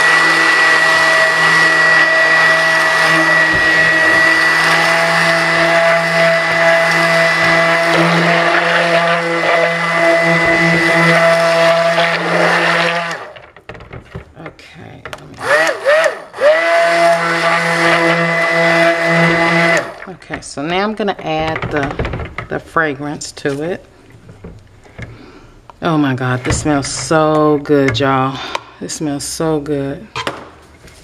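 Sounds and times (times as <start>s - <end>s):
stick blender motor whine: 0.0s - 13.6s, 15.4s - 20.1s.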